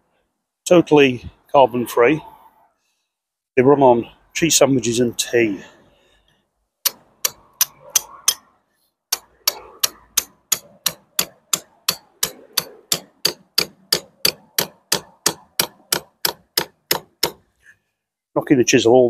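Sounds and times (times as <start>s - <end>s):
hammer striking steel chisel: 6.8s - 8.5s, 9.1s - 17.5s.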